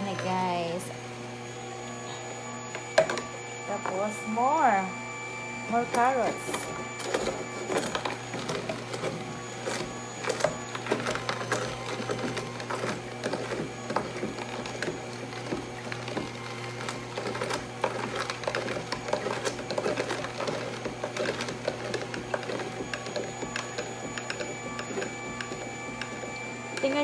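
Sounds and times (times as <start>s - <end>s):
juicer motor humming: 0.0s - 27.0s
carrots crunching: 6.5s - 26.3s.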